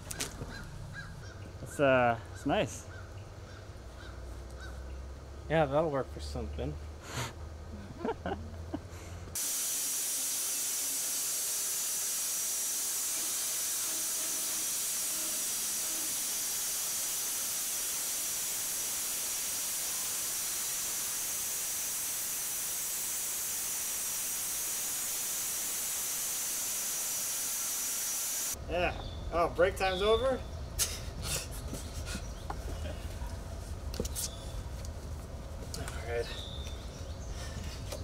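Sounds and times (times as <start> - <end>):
band sawmill running: 9.4 - 28.6.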